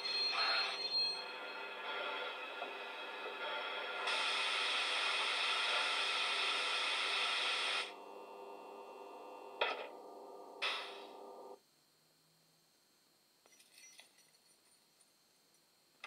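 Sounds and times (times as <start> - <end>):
steady hum: 0.0 - 13.4
air hiss from small speaker: 3.9 - 9.5.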